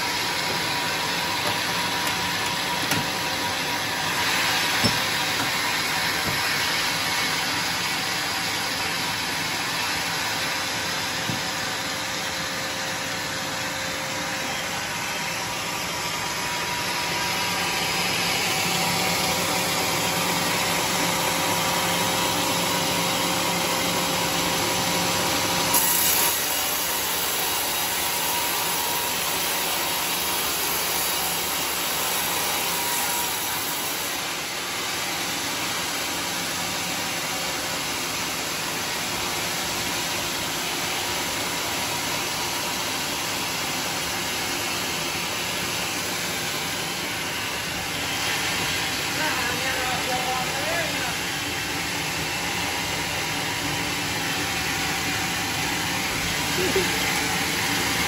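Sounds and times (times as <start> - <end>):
band saw cutting wood: 0.0 - 13.8, 25.5 - 34.8.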